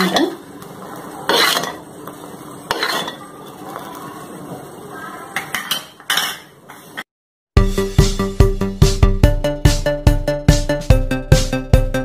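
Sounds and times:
spoon clinking and scraping pot: 1.2s - 1.9s, 2.7s - 3.6s, 5.4s - 7.0s.

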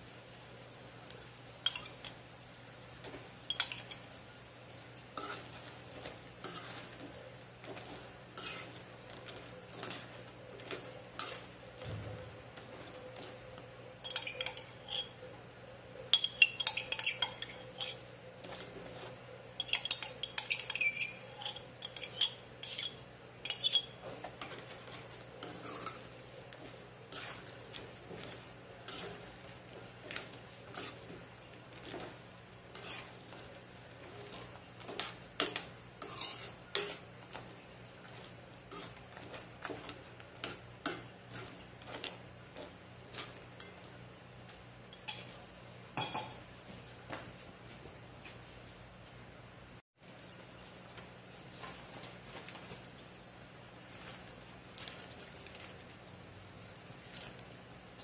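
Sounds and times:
metal spoon scraping a wok: 5.1s - 15.2s, 16.1s - 37.1s, 38.7s - 42.1s.

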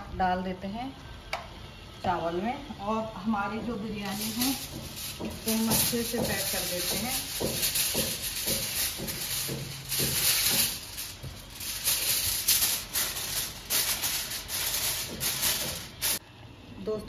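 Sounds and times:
aluminium foil crinkling: 4.0s - 16.2s.

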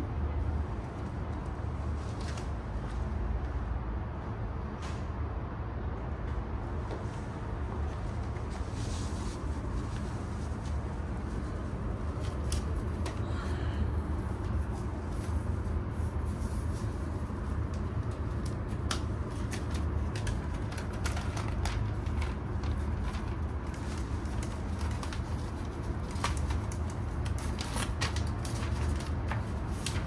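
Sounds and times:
distant city traffic rumble: 0.0s - 30.0s
hands tapping laptop and packaging: 17.5s - 30.0s.

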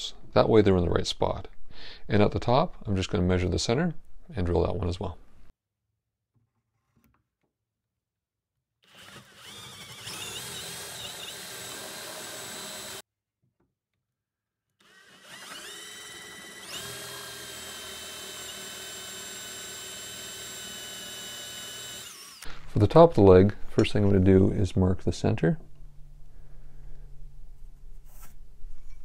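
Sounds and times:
power drill boring into wood: 8.8s - 13.0s, 14.8s - 22.5s.

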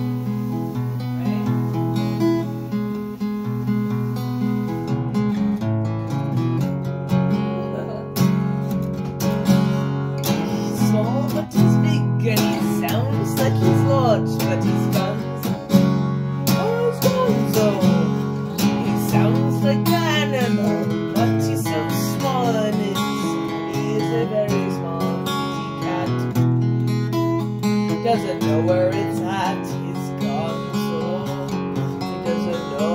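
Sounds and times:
acoustic guitar strummed: 0.0s - 32.9s
man singing: 10.1s - 26.4s, 27.9s - 32.9s.

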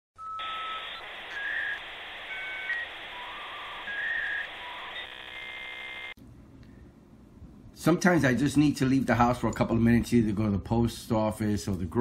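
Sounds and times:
buzzy electronic tone: 0.4s - 6.2s.

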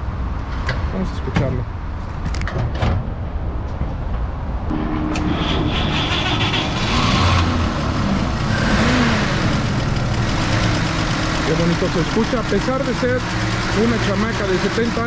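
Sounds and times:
truck engine running: 4.7s - 15.0s.

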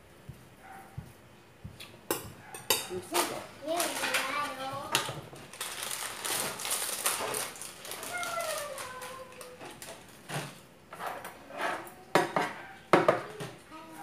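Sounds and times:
plastic wrapping crinkling: 3.2s - 4.7s, 5.4s - 10.5s.

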